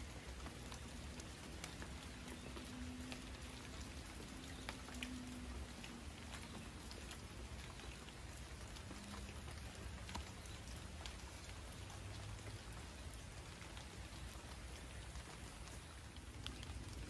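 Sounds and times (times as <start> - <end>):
rain falling on foliage: 0.0 - 17.0.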